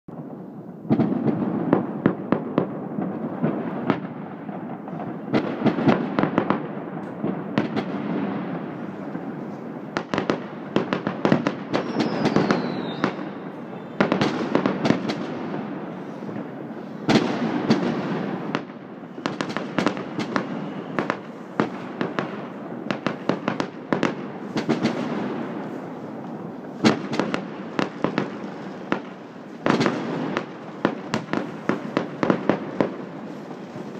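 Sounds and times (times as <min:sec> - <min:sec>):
fireworks bangs and crackles: 0:00.1 - 0:33.9
fireworks rumble: 0:00.1 - 0:33.9
falling firework whistle: 0:11.7 - 0:14.4, 0:19.1 - 0:22.2.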